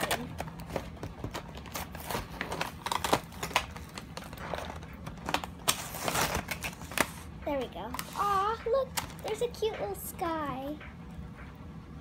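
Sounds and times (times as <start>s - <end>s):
packaging crinkling: 0.0s - 8.3s.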